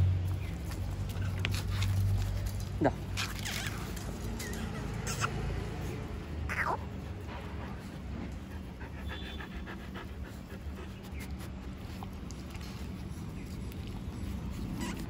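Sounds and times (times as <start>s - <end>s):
low background hum: 0.0s - 15.0s
dog panting: 4.6s - 15.0s.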